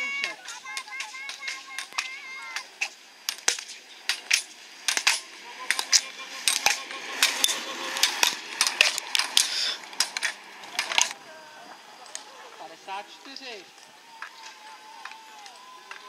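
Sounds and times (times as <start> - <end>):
pole tips striking asphalt: 0.2 - 11.2.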